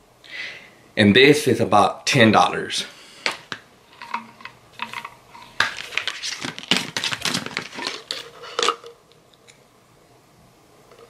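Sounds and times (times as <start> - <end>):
plastic bottle clicks and clatter: 3.3 - 8.9.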